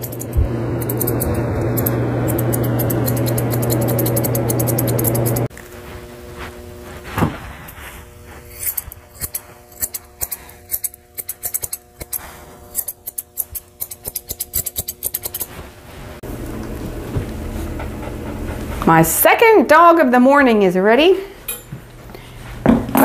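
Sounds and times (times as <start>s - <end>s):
shears snipping: 0.0s - 5.7s, 7.6s - 15.6s.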